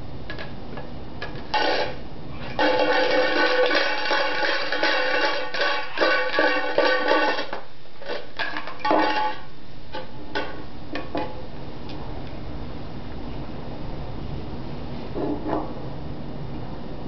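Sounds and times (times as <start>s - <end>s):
cap banging on metal can: 2.6s - 7.6s.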